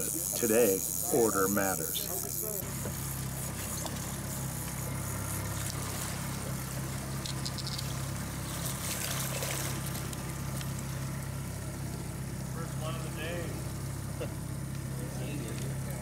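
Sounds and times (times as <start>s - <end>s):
boat engine running: 0.0s - 16.0s
fish splashing in water: 2.7s - 12.4s.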